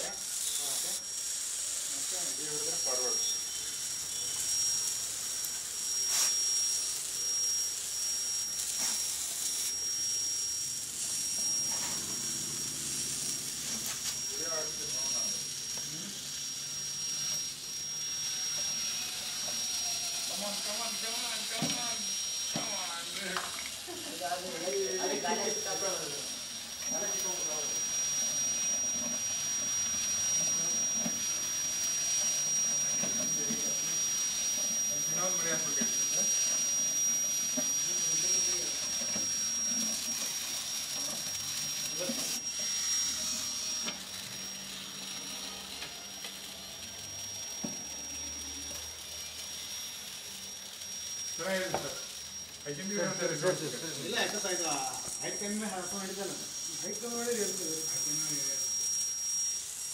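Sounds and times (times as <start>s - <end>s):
steady hiss: 0.0s - 18.5s, 49.2s - 59.9s
high-pitched whine and hiss: 0.0s - 59.9s
small motors whirring: 0.0s - 59.9s.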